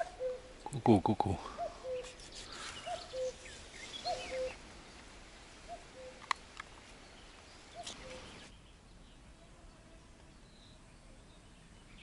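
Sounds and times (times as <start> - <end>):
cuckoo calling: 0.0 - 5.0, 5.6 - 8.6
small birds chirping: 0.0 - 12.0.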